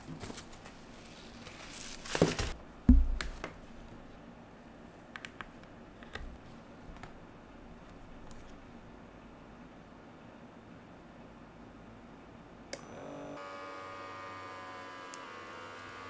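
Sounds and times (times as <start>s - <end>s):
dull thump: 2.9s - 3.2s.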